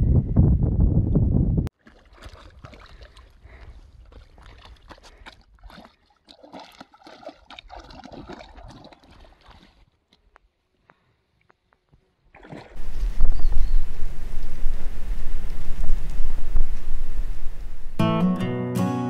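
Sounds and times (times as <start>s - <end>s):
water sloshing and splashing: 1.7s - 10.3s, 12.3s - 18.0s.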